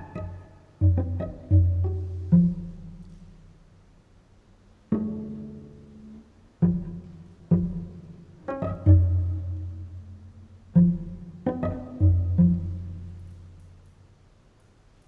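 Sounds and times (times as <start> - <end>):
cello plucked pizzicato: 0.0 - 3.9, 4.7 - 14.0.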